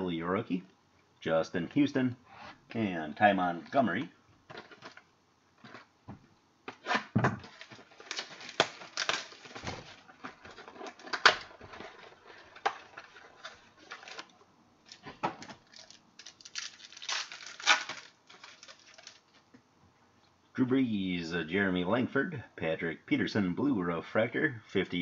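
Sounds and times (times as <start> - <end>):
wrapper tearing and crinkling: 7.4 - 14.3, 14.9 - 19.4
cards being handled: 14.9 - 19.4.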